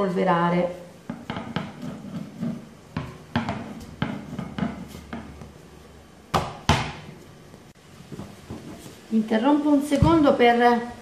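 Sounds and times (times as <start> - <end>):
rolling pin knocking on metal: 1.1 - 2.0.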